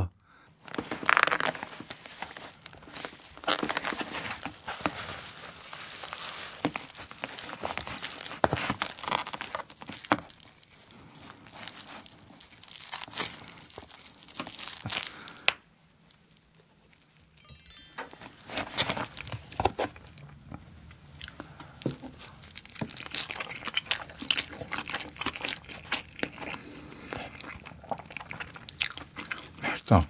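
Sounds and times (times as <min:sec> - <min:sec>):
hands kneading rice in plastic tray: 0:00.8 - 0:10.5.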